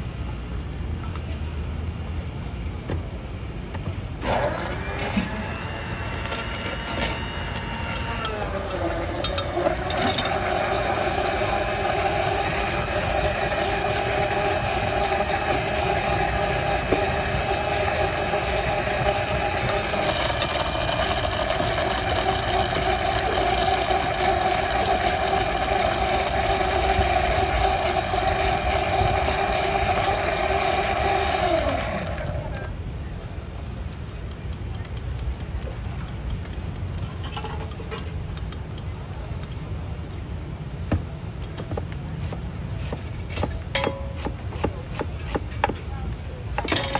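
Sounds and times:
blender running: 4.2s - 32.7s.

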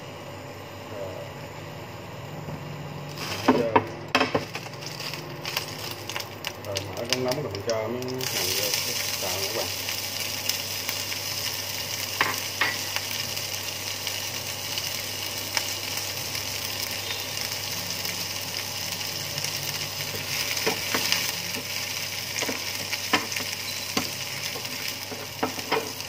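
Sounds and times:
scallions sizzling in frying pan: 3.0s - 26.0s.

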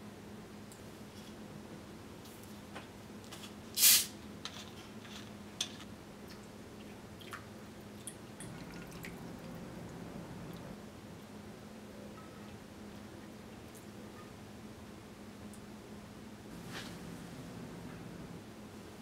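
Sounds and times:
bottle cap opening hiss: 3.8s - 4.1s.

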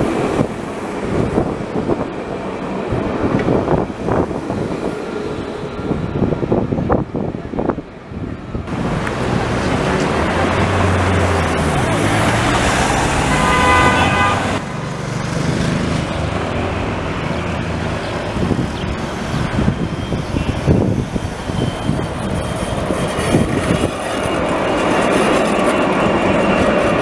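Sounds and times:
road traffic: 0.0s - 27.0s
tram running on street track: 0.0s - 27.0s
tram horn multi-note tone: 13.0s - 14.6s.

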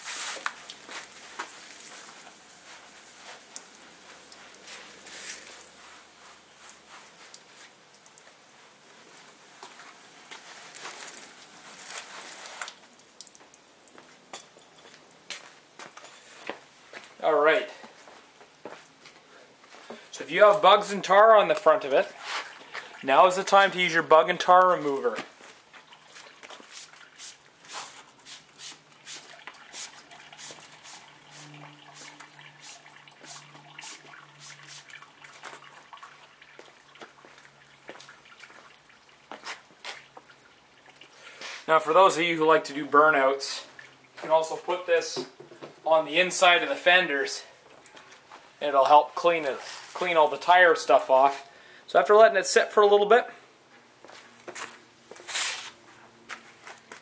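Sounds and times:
spray bottle spritzing: 0.0s - 1.5s, 26.5s - 35.0s, 55.3s - 55.8s
water spraying on car body: 0.0s - 8.0s, 26.4s - 40.2s.

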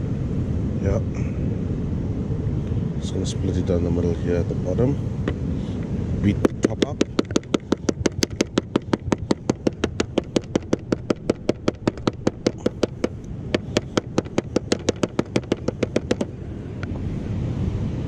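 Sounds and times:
mallet pounding bait: 6.4s - 16.4s.

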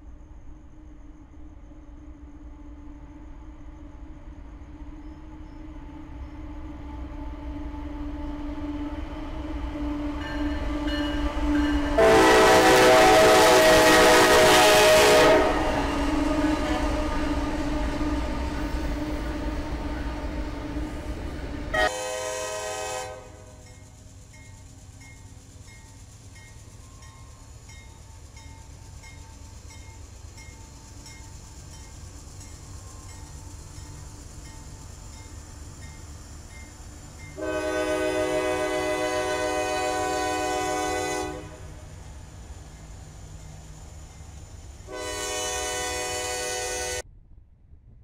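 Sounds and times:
diesel locomotives rumbling: 0.0s - 48.0s
train air horn blast: 11.5s - 21.1s, 21.7s - 23.7s, 37.4s - 41.8s, 44.8s - 47.0s.

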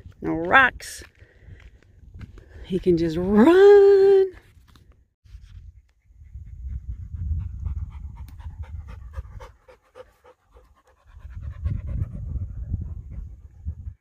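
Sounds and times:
dog panting quickly: 5.8s - 14.0s
low rumble: 10.5s - 14.0s.

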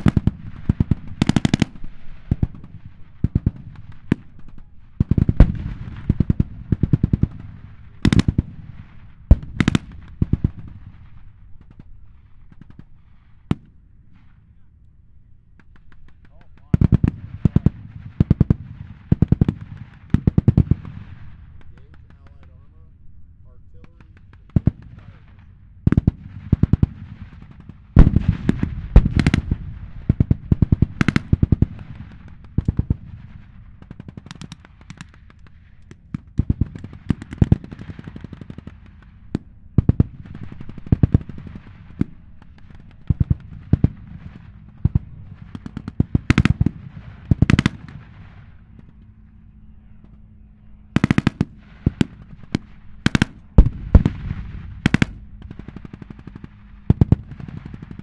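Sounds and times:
machine-gun fire bursts: 0.0s - 13.7s, 15.6s - 22.2s, 24.0s - 48.9s, 51.0s - 58.0s
tank engines running: 0.0s - 58.0s
single gunshots: 23.8s - 33.5s, 51.0s - 58.0s.

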